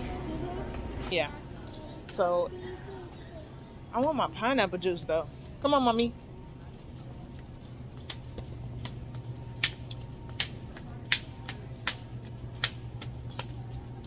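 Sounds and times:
steady low hum: 0.0s - 14.0s
child's shoes tapping on floor: 7.6s - 14.0s.

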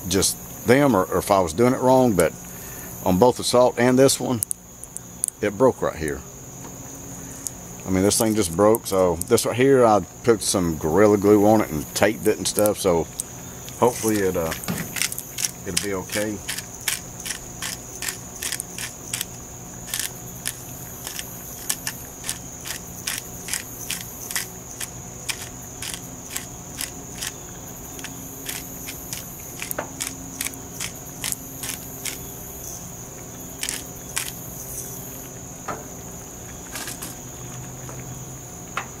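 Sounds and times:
high insect trill: 0.0s - 39.0s
pepper grinder clicking: 14.0s - 32.2s, 33.6s - 34.4s.

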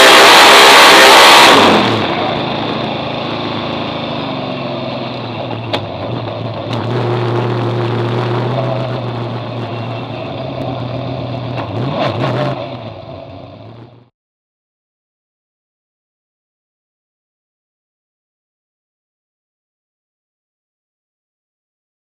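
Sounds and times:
race car engine running: 0.0s - 14.1s.

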